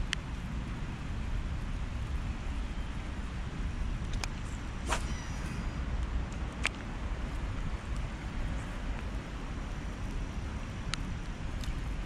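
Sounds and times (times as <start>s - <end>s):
rain falling on river: 0.0s - 4.8s
wind rumbling on microphone: 0.0s - 12.0s.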